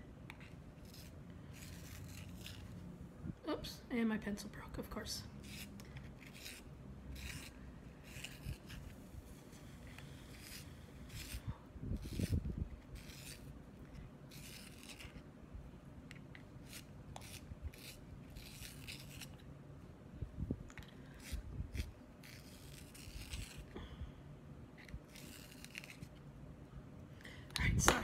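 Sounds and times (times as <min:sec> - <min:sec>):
pencil sharpening scrapes: 0:05.4 - 0:08.9, 0:10.3 - 0:11.4, 0:13.0 - 0:13.5, 0:14.3 - 0:15.2, 0:16.6 - 0:19.4, 0:21.2 - 0:23.6, 0:24.8 - 0:26.1.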